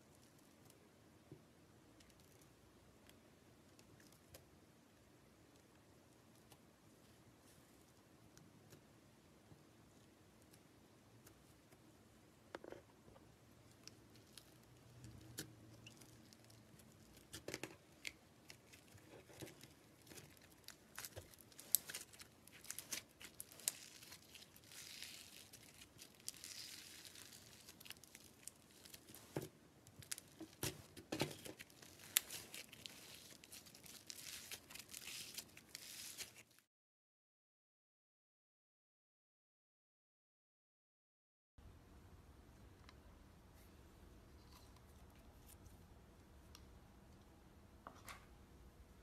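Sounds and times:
slime tearing apart: 15.8 - 29.2.

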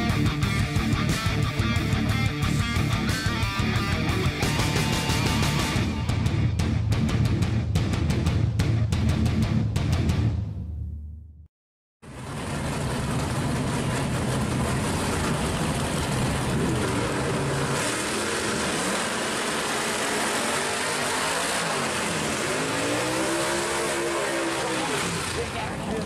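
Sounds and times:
car engine revving loudly: 12.2 - 26.0.

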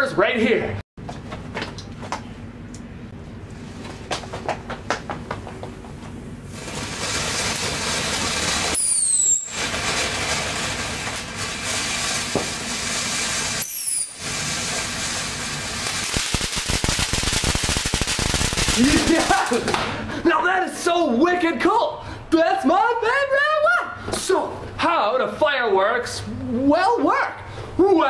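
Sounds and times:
firework fountain hissing: 6.5 - 19.8
short falling whistle: 8.8 - 9.6, 13.6 - 14.2.

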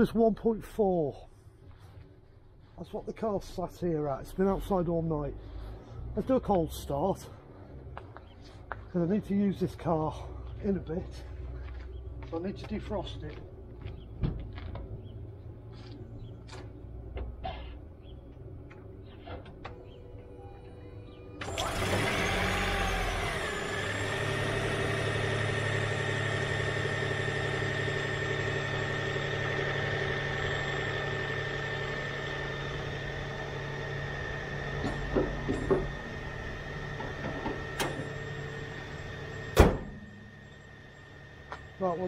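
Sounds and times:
car engine starting and running: 12.0 - 42.0
high whine: 18.6 - 42.0
car bonnet slamming shut: 39.5 - 40.2.

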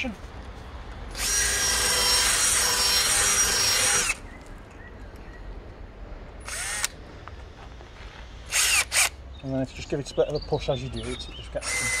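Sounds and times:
drill driver motor whine: 1.2 - 4.2, 6.5 - 6.9, 8.5 - 9.1, 11.6 - 12.0.

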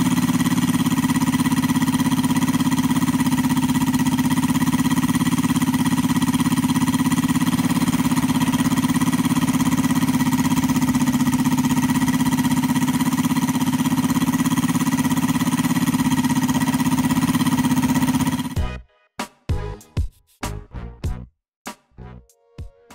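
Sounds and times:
radial engine running: 0.0 - 18.7.

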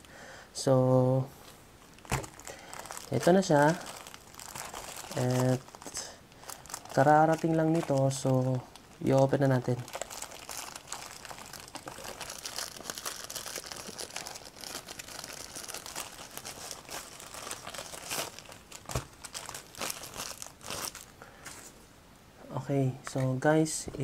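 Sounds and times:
plastic mailer crinkling: 1.9 - 21.1.

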